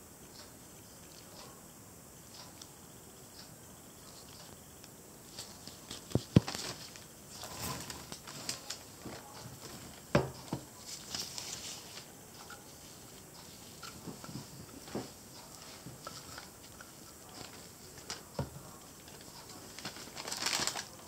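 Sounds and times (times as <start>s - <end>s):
rustling: 5.2s - 21.0s.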